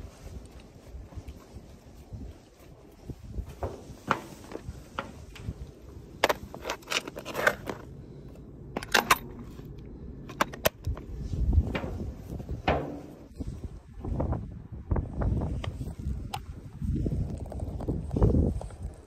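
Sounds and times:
footsteps on steel deck: 0.0s - 6.7s, 10.8s - 14.2s
gear clicking and scraping: 6.2s - 12.0s.

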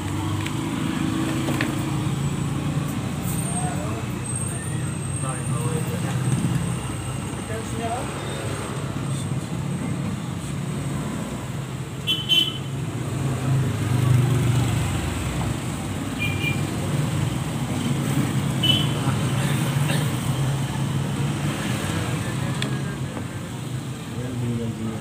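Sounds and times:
road traffic rumble: 0.0s - 25.0s
car horn toots: 12.0s - 12.7s.

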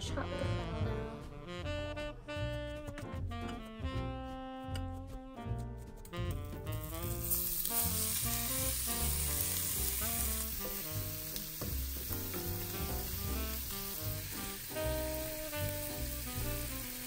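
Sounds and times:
background music: 0.0s - 17.0s
shrimp sizzling in butter: 6.5s - 17.0s.

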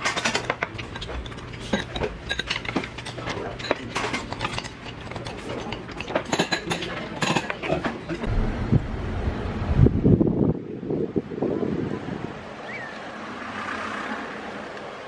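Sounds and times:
metal utensils clinking in steel bowl: 0.0s - 8.3s.

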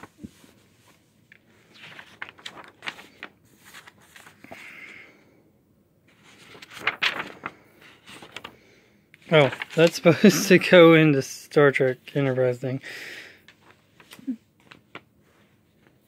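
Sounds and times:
paper pages flipping: 0.0s - 4.6s, 6.1s - 8.6s, 9.2s - 10.6s, 13.5s - 16.0s.

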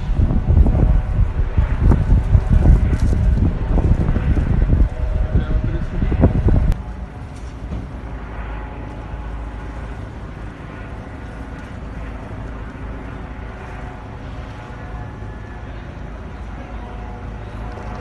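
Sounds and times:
low rumble of road traffic: 0.0s - 18.0s
faint distant voices: 13.5s - 18.0s.

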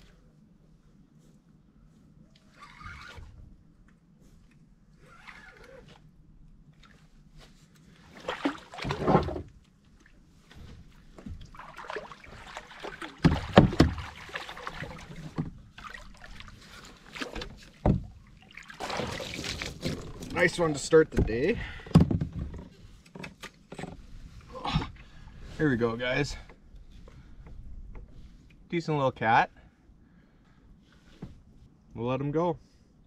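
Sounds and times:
water splashing and sloshing: 2.1s - 25.6s.

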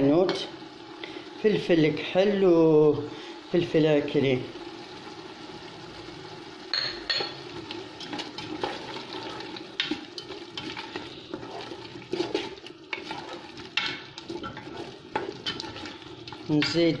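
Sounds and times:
vegetables sizzling in oil: 0.0s - 17.0s
wooden spoon scraping metal pot: 7.6s - 17.0s.

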